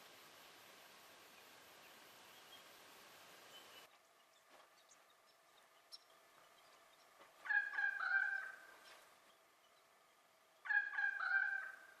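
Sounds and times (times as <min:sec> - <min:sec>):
bird calling: 0:04.8 - 0:09.0, 0:10.6 - 0:12.0.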